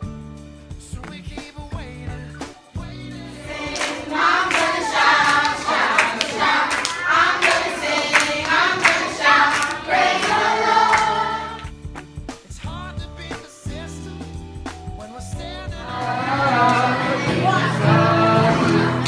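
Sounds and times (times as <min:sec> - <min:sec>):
background music: 0:00.0 - 0:19.0
women singing together: 0:03.2 - 0:11.7, 0:15.8 - 0:19.0
hands clapping in time: 0:03.3 - 0:11.8, 0:16.3 - 0:17.9.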